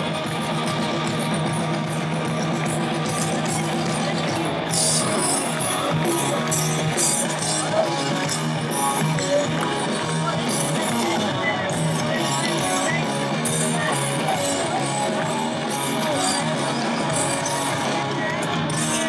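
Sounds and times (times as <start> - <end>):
electric guitar: 0.0 - 19.0
live rock band playing: 0.0 - 19.0.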